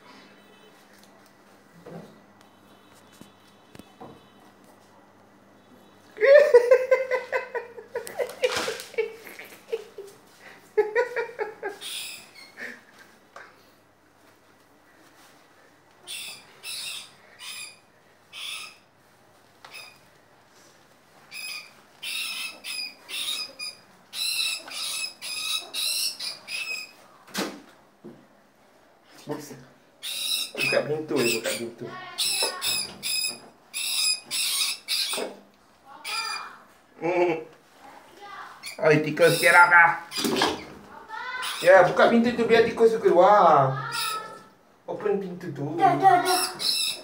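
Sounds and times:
person laughing: 6.2s - 12.0s
rat squeaking: 11.7s - 12.6s, 16.0s - 18.9s, 19.6s - 20.0s, 21.3s - 27.2s, 30.0s - 36.6s, 38.6s - 42.2s, 43.8s - 44.5s, 45.8s - 47.0s.

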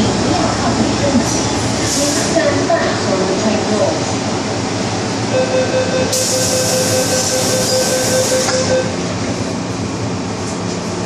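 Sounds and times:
train running rumble: 0.0s - 5.4s
electric train whine: 4.4s - 9.5s.

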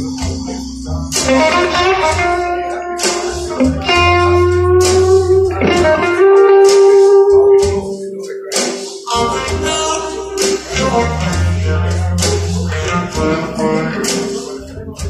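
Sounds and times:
steady bass line: 0.0s - 8.0s, 9.1s - 15.0s
blues music over speakers: 0.0s - 15.0s
guitar sustained notes: 1.2s - 8.4s, 10.2s - 15.0s.

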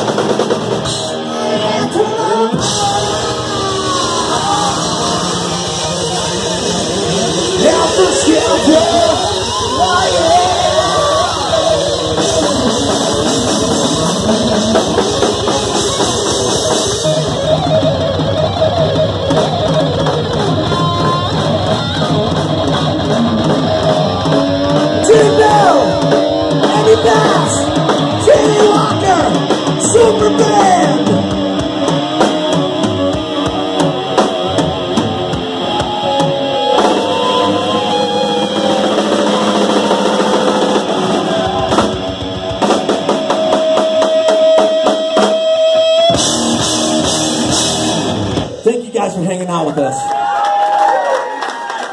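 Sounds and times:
drum kit: 0.0s - 49.5s
bending lead guitar line: 0.0s - 50.3s
electric guitars: 0.0s - 51.9s
person singing: 0.9s - 5.7s, 25.0s - 31.2s.

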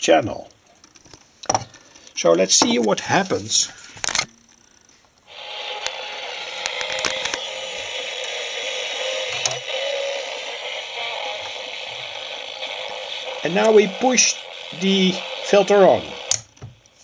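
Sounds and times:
distorted hissy radio broadcast: 5.3s - 16.4s
radio click: 5.8s - 7.5s.

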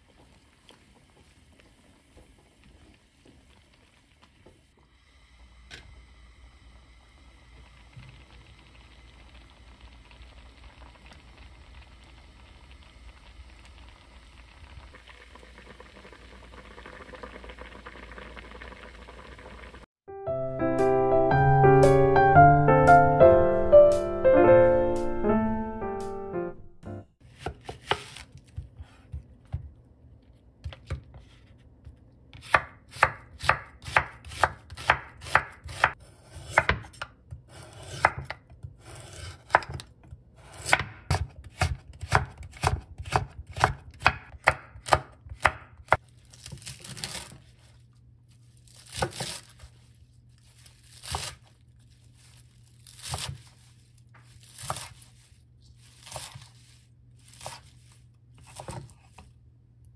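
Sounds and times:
knife cutting on wooden board: 27.3s - 29.6s, 54.3s - 55.0s, 56.0s - 56.6s, 57.3s - 57.7s, 58.4s - 59.2s.

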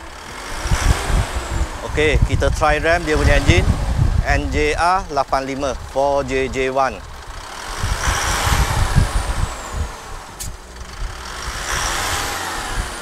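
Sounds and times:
diesel engine revving: 0.0s - 13.0s
sharp click: 10.4s - 10.6s.

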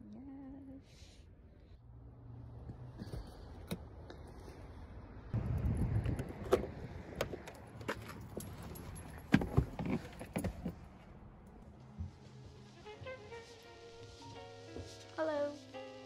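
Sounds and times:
keys jangling: 7.4s - 10.7s.

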